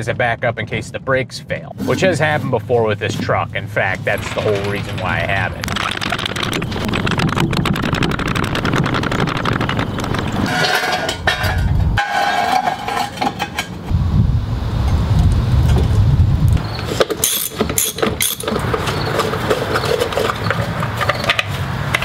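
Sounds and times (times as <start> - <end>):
floor jack clicking: 4.2 - 11.2.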